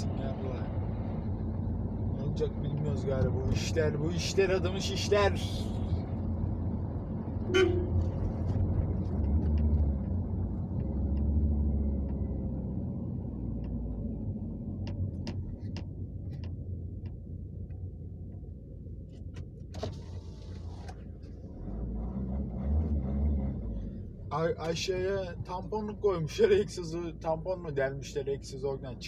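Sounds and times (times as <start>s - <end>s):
diesel engine from inside cabin: 0.0s - 29.0s.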